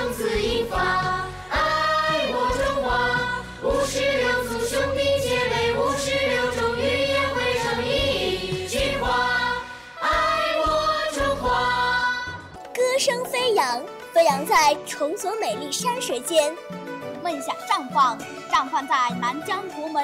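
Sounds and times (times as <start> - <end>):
choir singing over a beat: 0.0 - 12.6.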